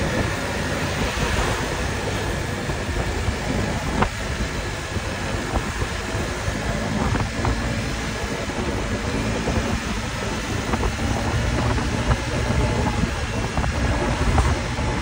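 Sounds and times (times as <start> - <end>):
road and wind noise: 0.0 - 15.0
scooter engine drone: 0.0 - 15.0.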